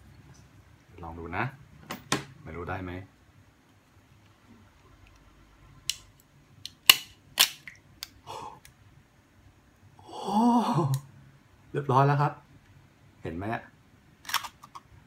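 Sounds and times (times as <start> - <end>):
egg cracker clicks and snaps: 5.8 - 8.2
person exclaiming in surprise: 10.0 - 11.1.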